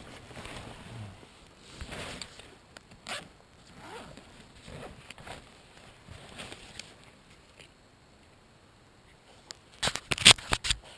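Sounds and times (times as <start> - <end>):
zipper rasping: 3.0 - 5.4
fabric rustling: 3.1 - 7.0.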